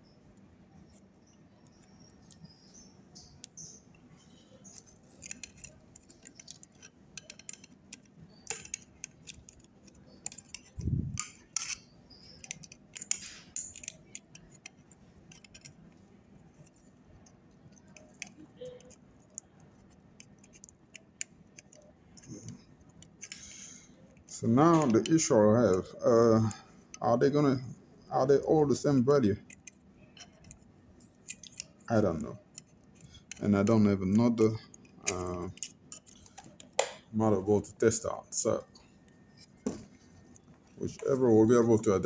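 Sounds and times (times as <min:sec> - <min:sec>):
metal tool clicking and scraping: 0:00.4 - 0:25.9, 0:29.4 - 0:37.0.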